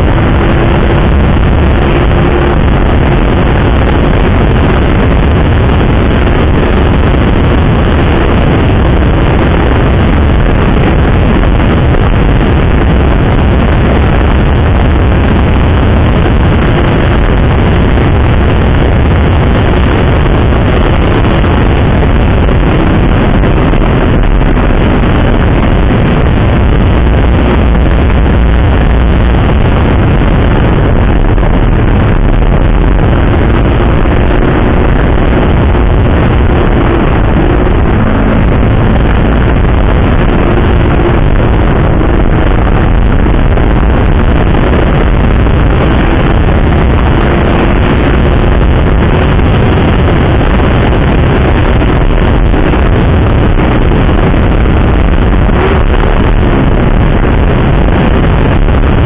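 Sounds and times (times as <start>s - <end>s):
motorcycle engine: 0.0s - 59.0s
wind rushing over microphone: 0.0s - 59.0s.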